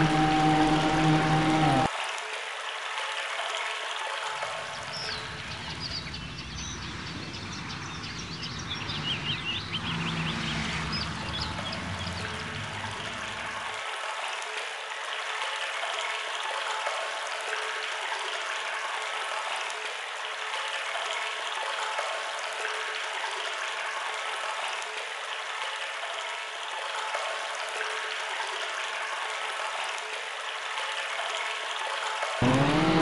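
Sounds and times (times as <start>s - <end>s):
water pouring into sump: 0.0s - 2.2s.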